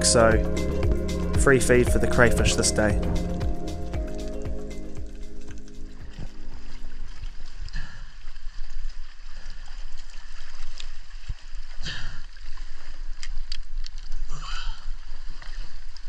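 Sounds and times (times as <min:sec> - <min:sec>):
water splashing around rocks: 0:00.0 - 0:16.0.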